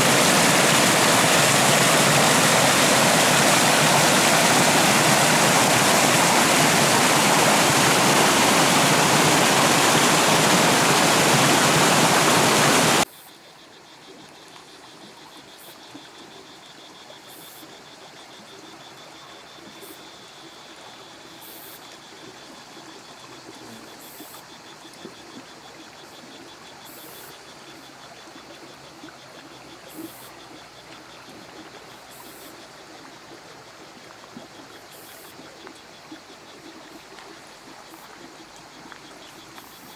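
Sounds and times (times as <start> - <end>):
water rushing down a channel: 0.0 - 13.1.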